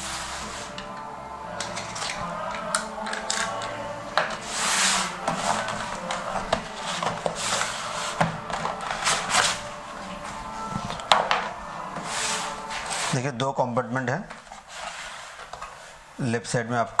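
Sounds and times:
cardboard box scraping: 4.4s - 9.8s, 11.9s - 13.2s, 14.4s - 16.0s.

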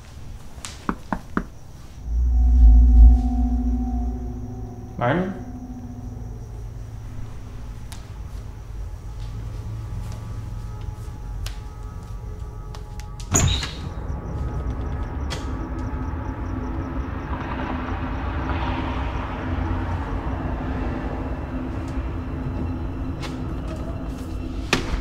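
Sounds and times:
low rumbling drone: 2.0s - 13.2s.

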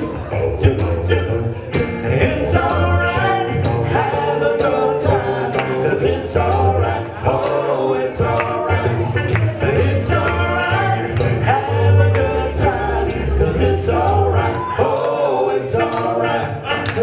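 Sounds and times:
live band playing: 0.0s - 17.0s
men singing: 0.0s - 17.0s.

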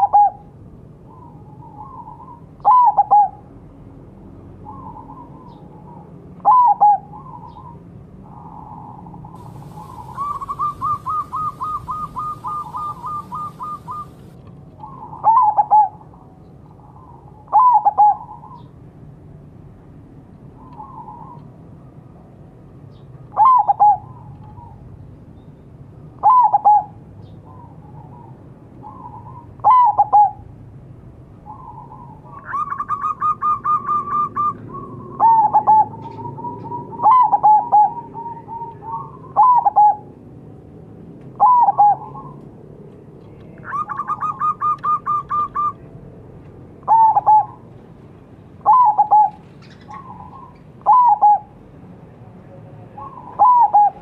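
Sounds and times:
dove cooing: 0.0s - 0.5s, 1.1s - 3.4s, 4.6s - 16.2s, 17.4s - 18.6s, 23.4s - 24.8s, 26.2s - 30.4s, 31.5s - 40.1s, 41.4s - 42.4s, 43.6s - 45.9s, 46.8s - 47.6s, 48.6s - 51.6s, 52.9s - 54.0s.

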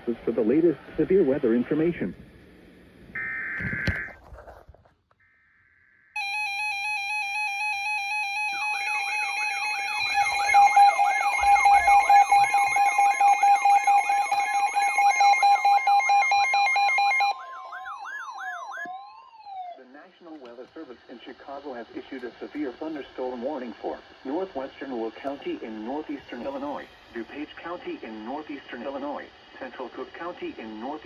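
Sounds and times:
rapid pulsing alarm beep: 3.2s - 4.1s, 6.1s - 18.9s
warbling alarm tone: 3.2s - 4.2s, 5.2s - 19.9s.

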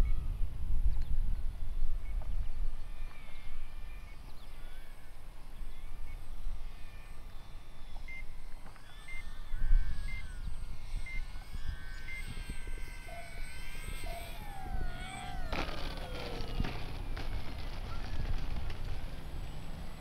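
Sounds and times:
wind rumble on microphone: 0.0s - 4.6s, 9.4s - 20.0s
model plane motor whine: 0.0s - 20.0s.

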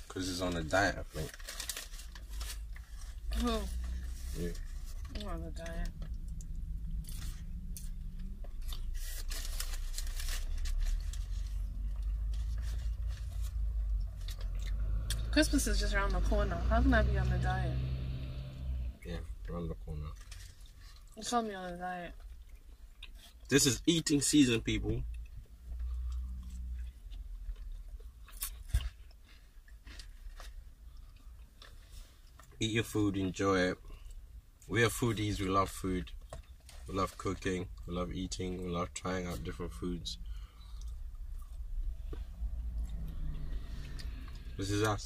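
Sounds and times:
chewing crispy fried food: 0.0s - 15.2s, 19.1s - 24.2s, 25.1s - 32.9s, 40.3s - 45.0s.

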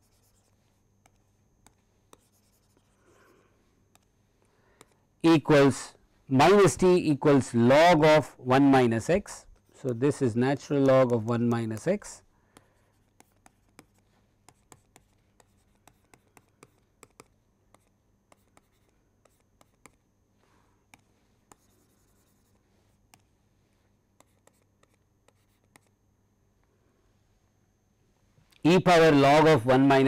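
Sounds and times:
stylus tapping and scratching: 0.0s - 3.0s, 9.4s - 20.0s, 24.2s - 26.0s
low steady hum: 0.0s - 30.0s.

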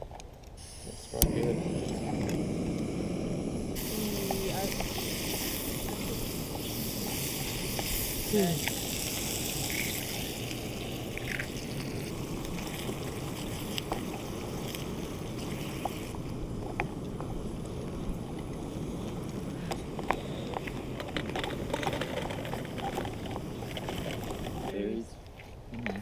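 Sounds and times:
food frying in a pan: 3.8s - 19.7s.

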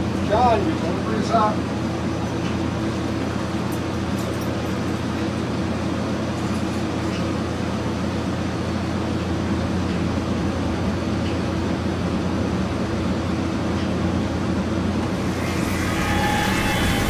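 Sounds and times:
low machine drone: 14.3s - 17.0s
shimmering high tone: 15.1s - 17.0s.

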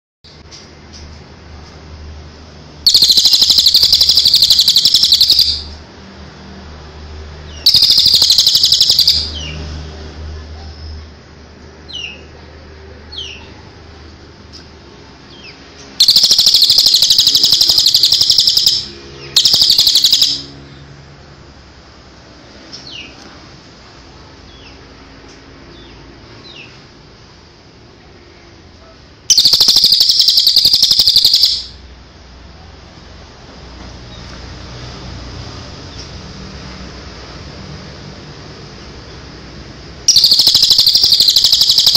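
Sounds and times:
bird giving fast high rattle: 2.9s - 5.7s, 7.7s - 9.3s, 16.0s - 20.5s, 29.3s - 31.7s, 40.1s - 41.9s.

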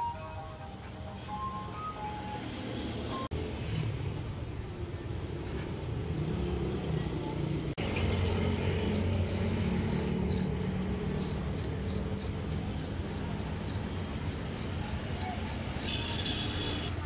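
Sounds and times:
vehicle engines rumbling: 0.0s - 17.0s.

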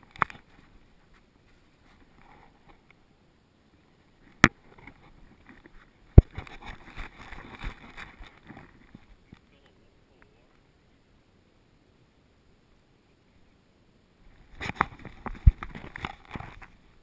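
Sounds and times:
fur rustling against microphone: 4.0s - 9.2s, 14.2s - 17.0s.

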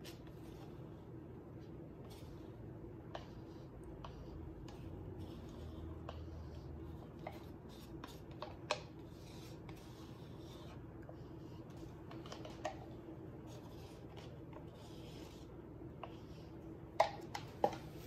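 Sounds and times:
low room hum: 0.0s - 18.0s
plastic cups tapping and clicking: 7.2s - 9.1s, 12.1s - 13.0s, 16.9s - 18.0s.

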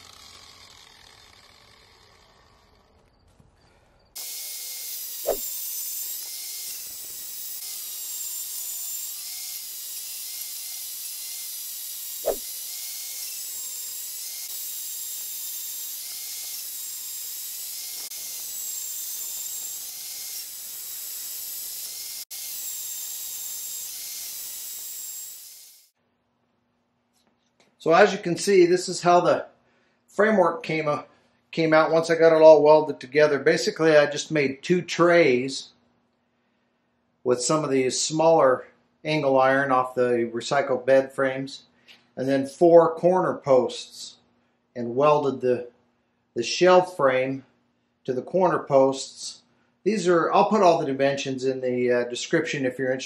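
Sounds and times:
band saw cutting steel: 0.0s - 3.0s, 4.2s - 26.0s.

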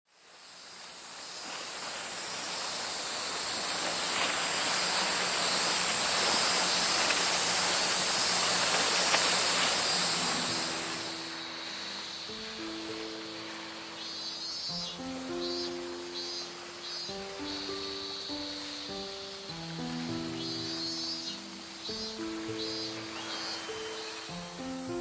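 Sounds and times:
thin high hiss: 0.1s - 25.0s
steady rushing outdoor ambience: 0.2s - 25.0s
music: 9.9s - 25.0s.

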